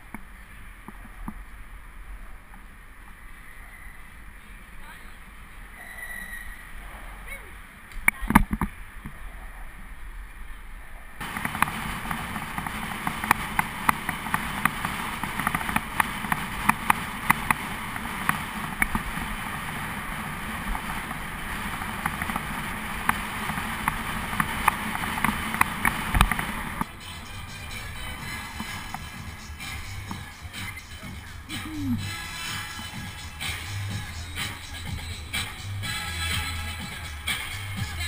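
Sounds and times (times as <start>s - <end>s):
bicycle rattles and clicks: 11.2s - 27.0s
wind rushing over microphone: 11.2s - 27.0s.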